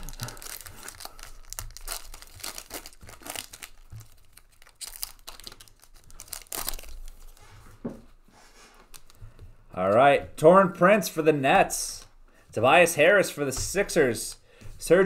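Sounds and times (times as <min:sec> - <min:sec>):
wrapper crinkling and tearing: 0:00.0 - 0:07.4, 0:08.9 - 0:09.2
cards rustling: 0:00.0 - 0:07.6.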